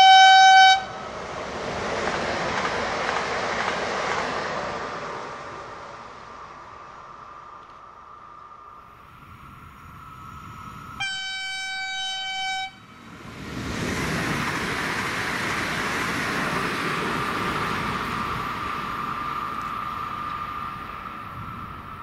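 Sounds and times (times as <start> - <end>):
train horn blast: 0.0 - 1.0, 11.0 - 12.9
train passing at speed: 0.0 - 22.0.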